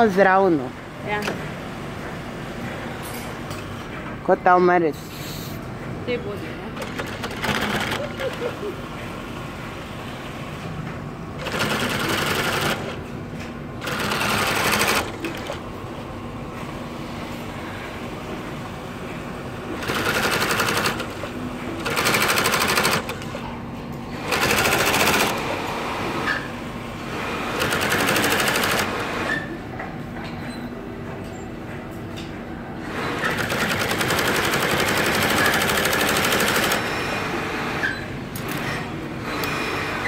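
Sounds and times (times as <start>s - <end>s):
sewing machine stitching: 6.8s - 8.5s, 11.4s - 13.0s, 13.8s - 15.6s, 19.8s - 23.2s, 24.2s - 25.6s, 27.3s - 29.5s, 33.1s - 37.2s.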